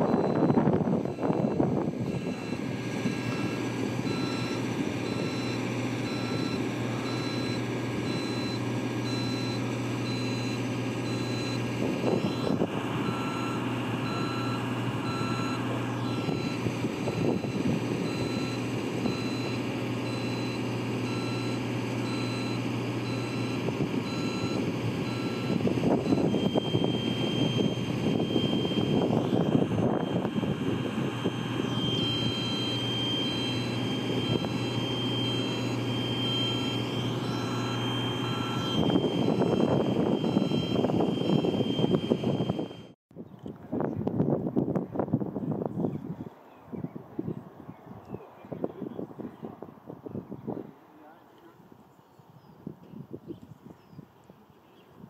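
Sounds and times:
boom lift engine running: 0:00.0 - 0:43.0
long beep pulses: 0:00.0 - 0:43.0
motion alarm beeping: 0:00.0 - 0:43.0.

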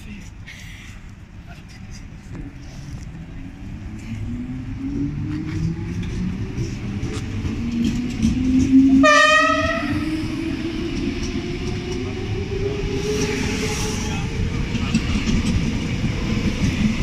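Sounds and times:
train horn blast: 0:08.9 - 0:10.0.

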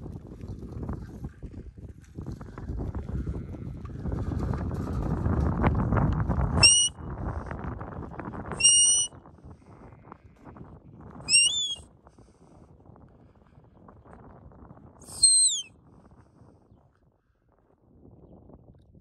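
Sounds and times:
shepherd's whistle blasts: 0:06.6 - 0:06.9, 0:08.6 - 0:09.1, 0:11.3 - 0:11.8, 0:15.1 - 0:15.7.

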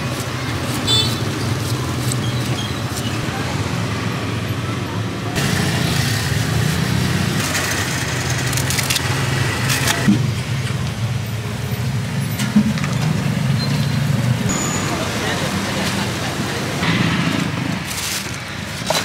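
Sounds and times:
passing motorbikes and cars: 0:00.0 - 0:18.8.

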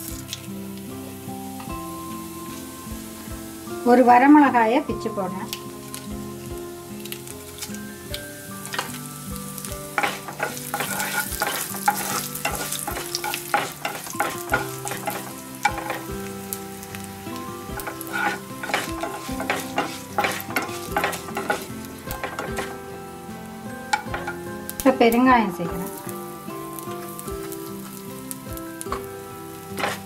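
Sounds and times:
seeds sizzling in hot oil: 0:00.0 - 0:30.0
wooden spatula scraping a pan: 0:10.0 - 0:16.1, 0:17.8 - 0:22.8, 0:29.7 - 0:30.0.

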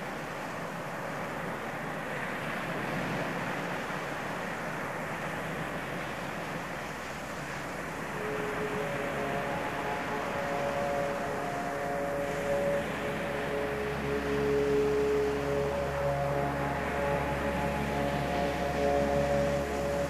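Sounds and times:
steady rushing noise: 0:00.0 - 0:20.0
held tones: 0:08.1 - 0:20.0.

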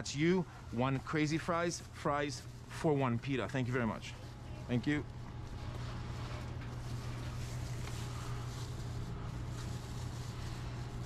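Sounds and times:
low hum of equipment: 0:00.0 - 0:11.0.

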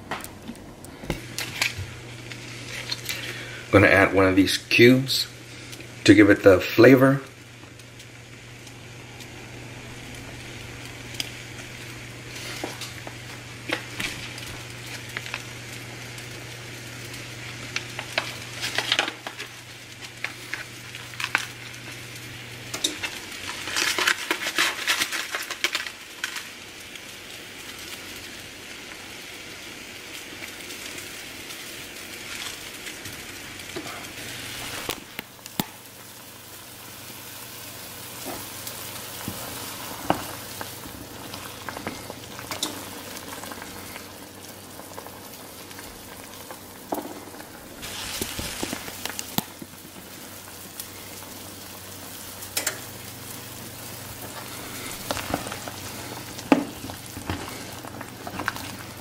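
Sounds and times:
low steady hum: 0:00.0 - 0:24.5
soup bubbling in a pot: 0:05.3 - 0:06.1, 0:07.0 - 0:59.0
crackling and splashing: 0:07.3 - 0:59.0.

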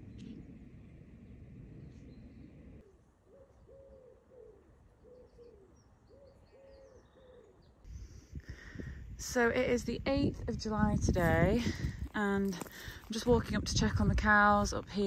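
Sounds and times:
faint bird chirps: 0:01.8 - 0:07.9
pigeon cooing: 0:02.8 - 0:07.6.

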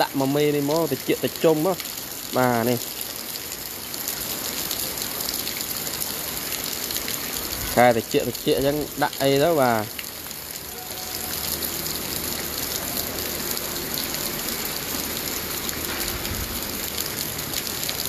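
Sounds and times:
steady rain on a road: 0:00.0 - 0:18.0.

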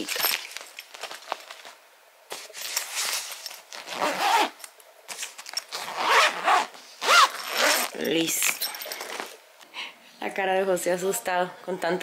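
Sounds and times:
suitcase zipper rasping: 0:03.8 - 0:04.6, 0:05.7 - 0:08.0.

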